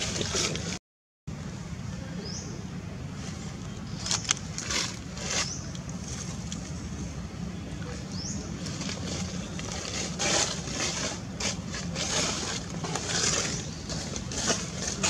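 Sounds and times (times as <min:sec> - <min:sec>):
dry leaves crackling: 0:03.2 - 0:06.8, 0:08.2 - 0:15.0.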